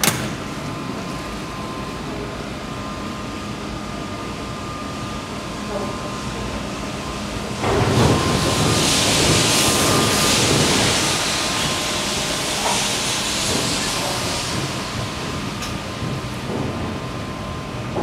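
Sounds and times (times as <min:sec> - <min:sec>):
hissing rush of air: 0:07.4 - 0:15.4.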